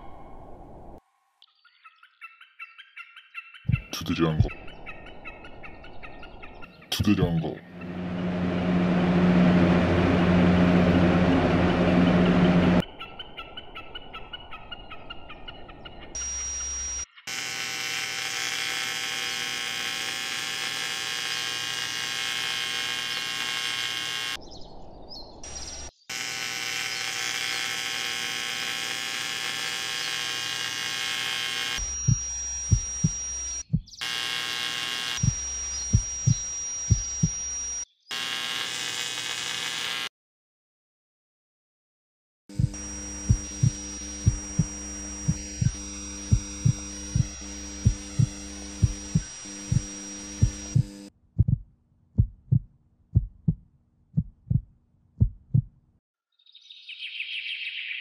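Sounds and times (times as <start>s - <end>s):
electronic humming and buzzing: 7.0s - 12.8s, 16.2s - 24.4s, 25.5s - 40.1s, 42.5s - 51.1s
short low thumps: 32.1s - 34.0s, 42.6s - 53.6s, 54.2s - 55.8s.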